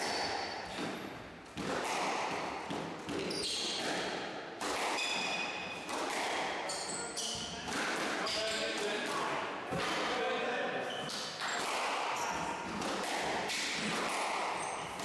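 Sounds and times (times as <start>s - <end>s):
sports shoes squeaking on floor: 0.0s - 1.2s, 3.1s - 3.9s, 5.0s - 5.8s, 6.6s - 7.6s, 10.8s - 11.6s, 12.2s - 12.6s, 14.6s - 15.0s
squash ball hitting walls: 0.0s - 10.2s, 11.1s - 15.0s.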